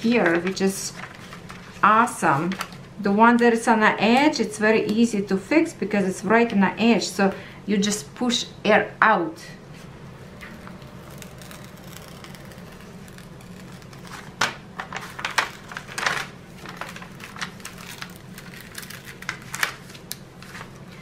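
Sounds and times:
plastic sheet crinkling: 0:00.0 - 0:02.8, 0:10.3 - 0:21.0.

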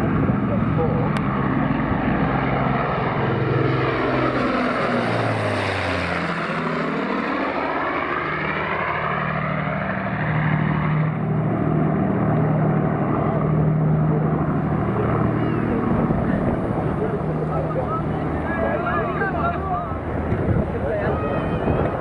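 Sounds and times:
propeller aircraft engines droning: 0:00.0 - 0:22.0.

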